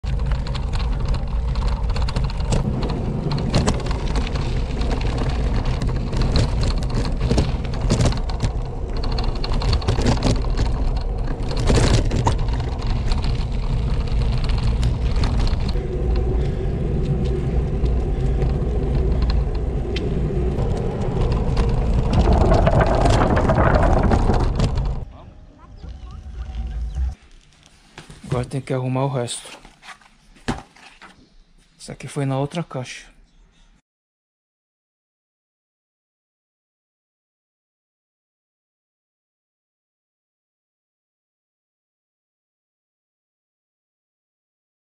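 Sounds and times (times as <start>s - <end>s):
tyres on wooden planks: 0.0s - 25.1s
bike tyre rumble: 0.0s - 28.4s
gravel crunching: 0.0s - 28.8s
wind buffeting microphone: 0.1s - 27.2s.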